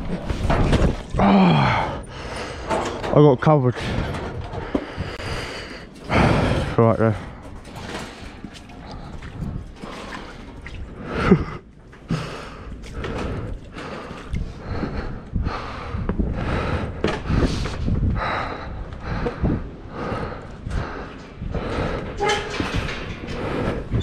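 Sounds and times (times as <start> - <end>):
footsteps on concrete and metal steps: 0.0 - 24.0
person breathing: 1.2 - 3.1, 3.8 - 24.0.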